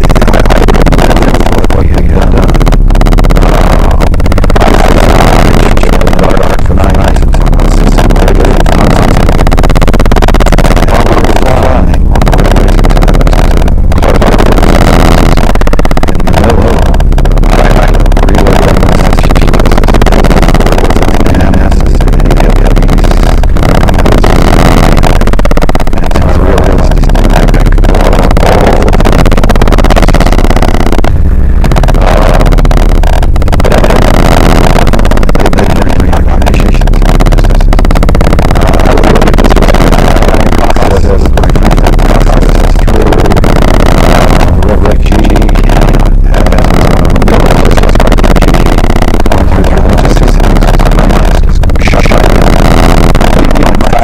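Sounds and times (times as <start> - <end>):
distorted electronic noise: 0.0 - 54.0.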